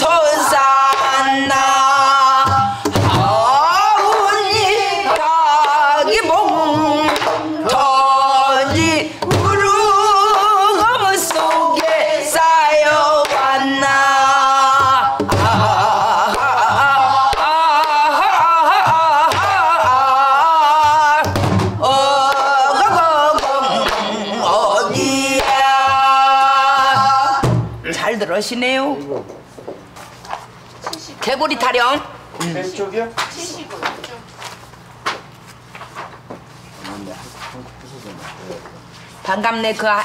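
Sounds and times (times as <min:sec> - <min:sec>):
woman singing with heavy vibrato: 0:00.0 - 0:27.8
barrel drum thumps: 0:14.8 - 0:15.9, 0:20.8 - 0:21.8, 0:26.9 - 0:27.8.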